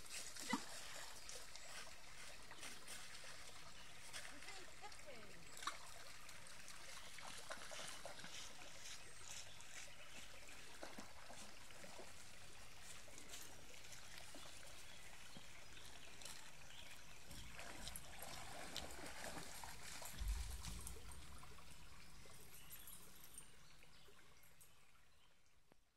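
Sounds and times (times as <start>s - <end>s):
brook trickling and babbling: 0.0s - 25.9s
low thump: 20.1s - 21.8s.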